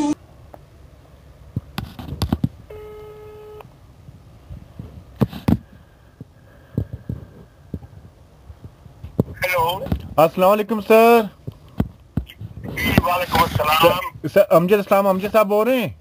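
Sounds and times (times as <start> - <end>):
electronic telephone tone: 2.7 - 3.7.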